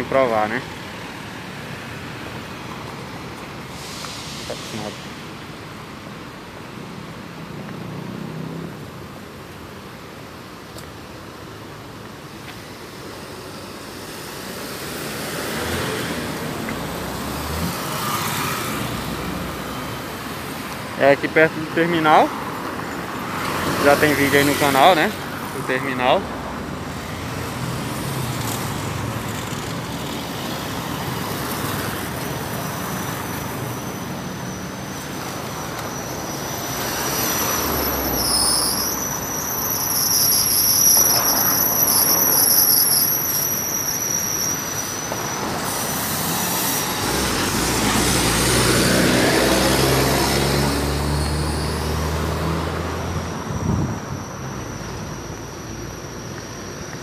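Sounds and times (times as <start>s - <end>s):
cars driving past: 0.0s - 10.0s, 12.4s - 57.0s
thin high whine: 31.8s - 47.6s, 51.2s - 57.0s
engine speeding up: 46.2s - 54.0s.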